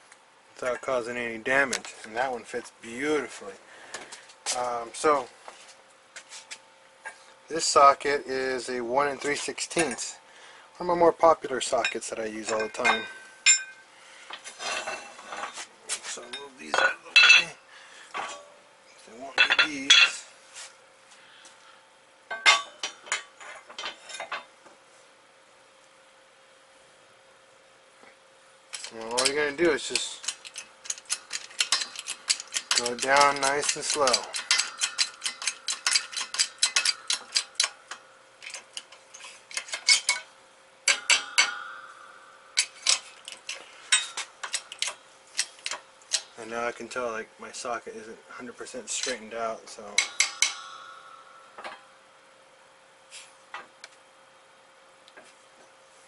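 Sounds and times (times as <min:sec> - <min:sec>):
shop press metallic clicking: 0:28.8 - 0:40.3, 0:40.9 - 0:42.0, 0:50.0 - 0:51.8
heavy steel plates clanking: 0:40.9 - 0:44.9, 0:49.9 - 0:51.9.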